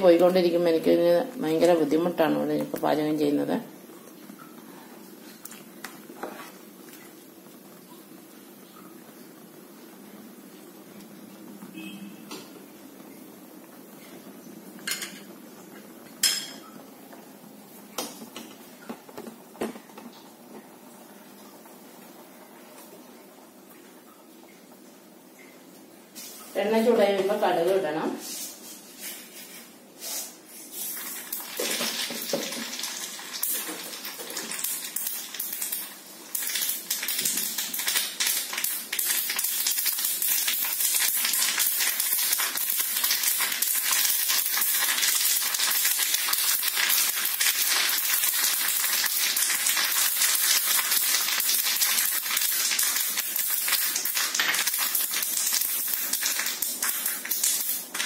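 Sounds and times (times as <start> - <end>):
seeds popping in hot oil: 14.8 - 16.9, 31.0 - 58.0.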